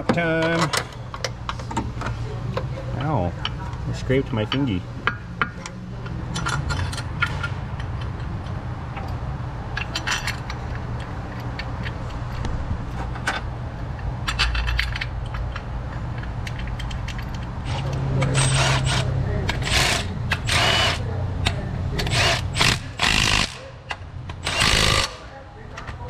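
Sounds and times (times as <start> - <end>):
metal tools clinking and scraping: 9.0 - 12.2, 14.2 - 23.6.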